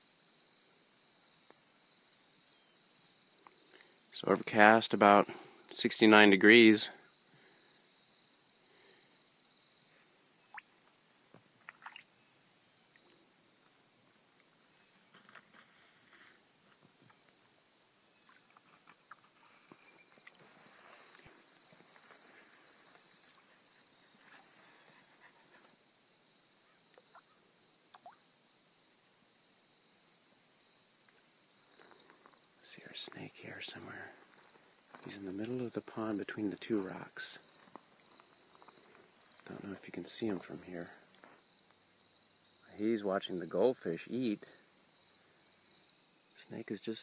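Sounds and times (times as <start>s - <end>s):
crickets trilling: 0.0s - 47.0s
faint ticks: 3.4s - 4.0s, 27.9s - 28.2s
high hiss: 31.7s - 41.4s.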